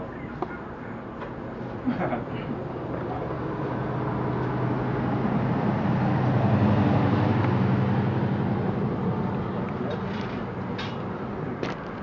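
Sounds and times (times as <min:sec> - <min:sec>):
vehicle engine driving past: 0:03.0 - 0:11.1.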